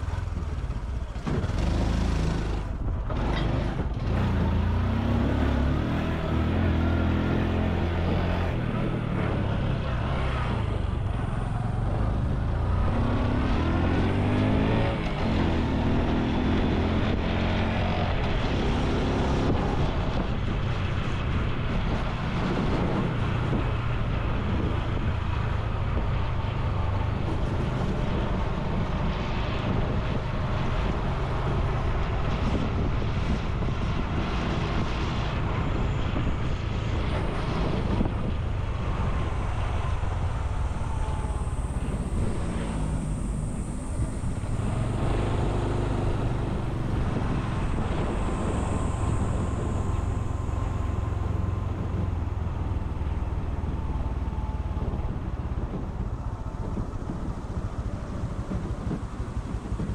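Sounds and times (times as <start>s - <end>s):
motorcycle engine running: 0.0s - 10.1s, 36.8s - 59.9s
wind and road noise: 0.0s - 59.9s.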